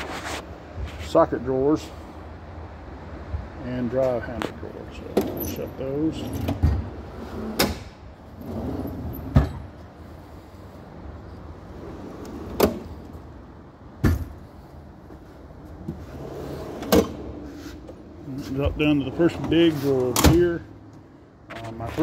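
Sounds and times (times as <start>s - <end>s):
toolbox drawers knocking shut: 9.2s - 9.7s, 14.0s - 14.4s.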